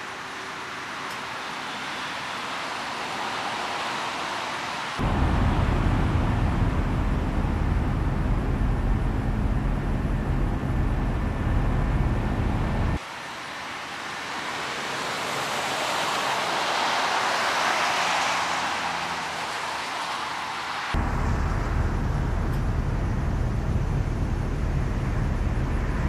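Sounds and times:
highway traffic rumble: 0.0s - 26.0s
passing vehicle rush: 1.6s - 26.0s.

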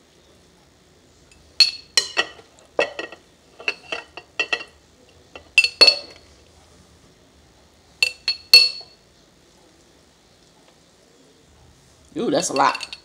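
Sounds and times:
metal spoon clinking on glass: 1.3s - 4.8s, 5.4s - 6.2s, 8.0s - 9.0s, 12.4s - 13.0s.

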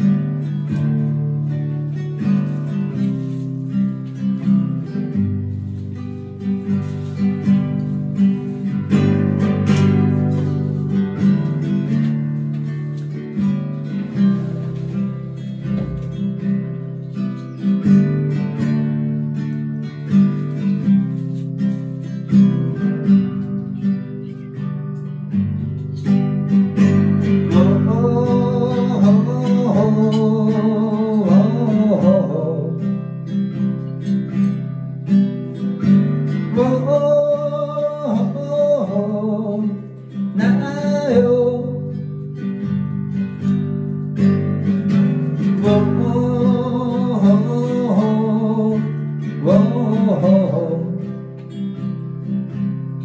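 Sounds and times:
acoustic guitar strumming: 0.0s - 53.0s
man singing: 27.2s - 33.1s, 36.3s - 42.2s, 45.4s - 51.3s.

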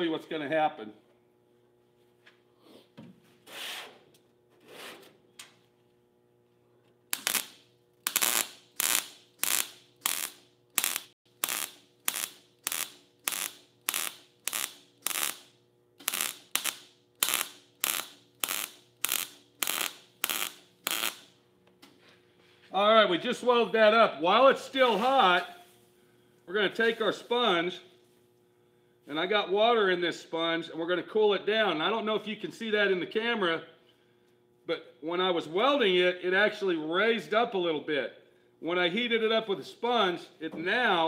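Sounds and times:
short welding bursts: 7.1s - 21.4s.

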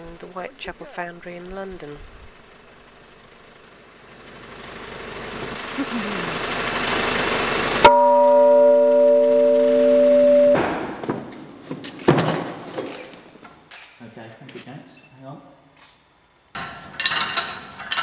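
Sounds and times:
church bell ringing: 7.8s - 10.6s
pallet truck rolling knocks: 10.4s - 13.0s.

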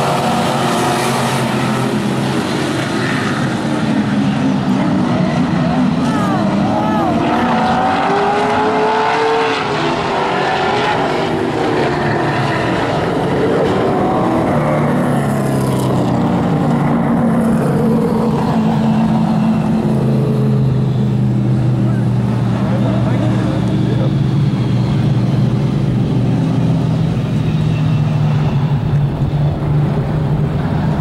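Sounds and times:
race car engines passing: 0.0s - 31.0s.

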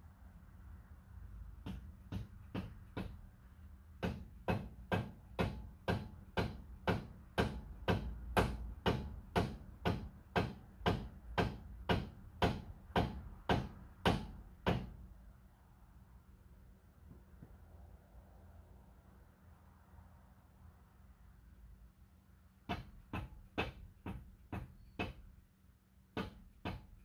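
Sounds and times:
hammer on metal: 1.6s - 3.3s, 4.0s - 15.1s, 22.6s - 25.4s, 26.1s - 27.0s.

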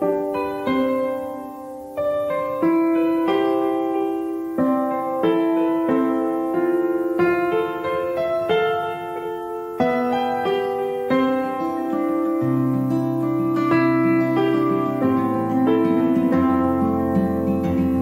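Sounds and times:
gentle piano music: 0.0s - 18.0s.

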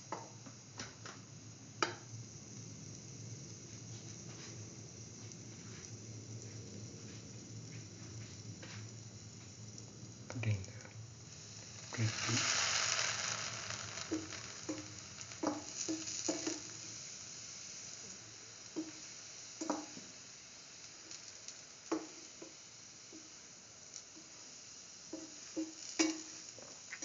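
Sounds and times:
food sizzling in hot oil: 0.0s - 27.0s
oil popping and crackling: 9.0s - 27.0s.

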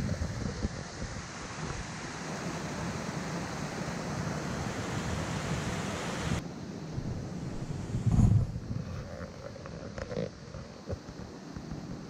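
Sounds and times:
water rushing in creek: 0.0s - 12.0s.

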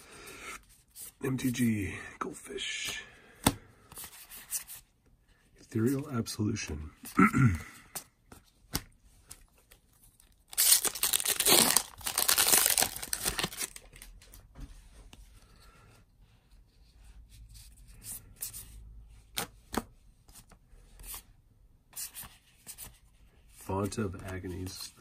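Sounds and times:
cards being handled: 7.8s - 14.4s
wrapper tearing: 10.2s - 14.1s.

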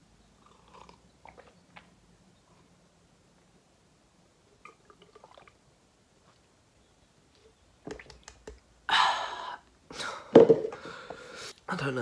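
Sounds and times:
man swallowing a drink: 0.4s - 1.9s, 4.6s - 5.6s.

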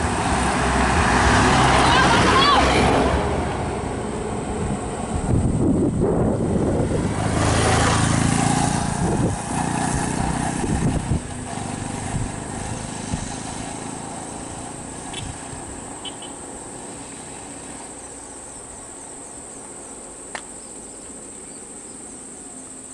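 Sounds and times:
crickets chirring: 12.5s - 22.9s.

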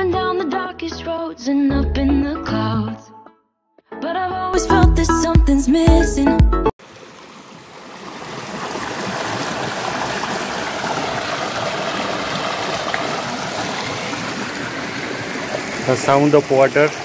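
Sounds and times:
stream splashing down a cascade: 6.8s - 17.0s.

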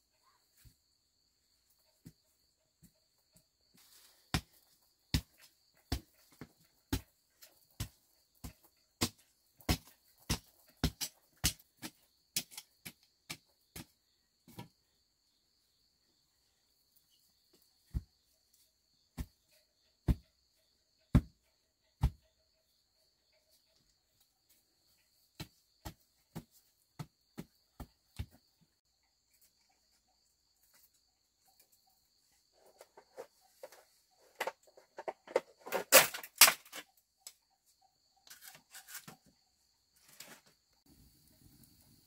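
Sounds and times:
faint high insect drone: 36.7s - 42.0s.

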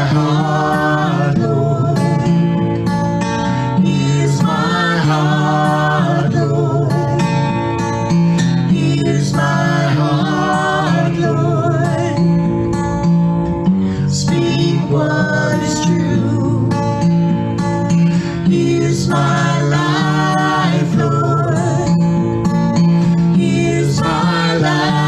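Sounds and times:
man and woman singing: 0.0s - 2.4s, 3.4s - 7.5s, 8.7s - 12.5s, 13.9s - 17.1s, 18.1s - 22.2s, 23.0s - 25.0s
strummed acoustic guitar: 0.0s - 25.0s.

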